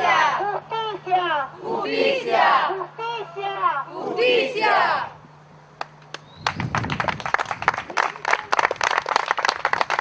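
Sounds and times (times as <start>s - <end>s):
crowd clapping: 5.8s - 10.0s.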